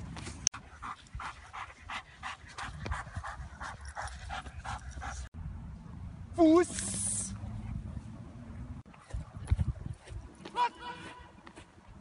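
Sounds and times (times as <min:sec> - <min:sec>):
dog panting rapidly: 0:00.6 - 0:05.3.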